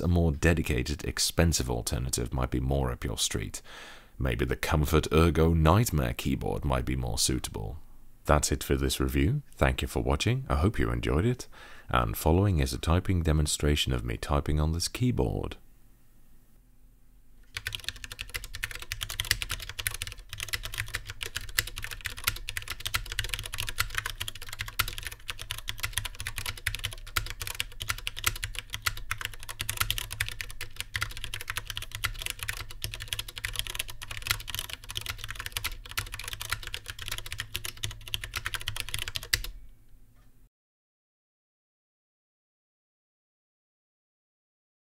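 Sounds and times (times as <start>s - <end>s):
mechanical keyboard typing: 17.4s - 39.5s.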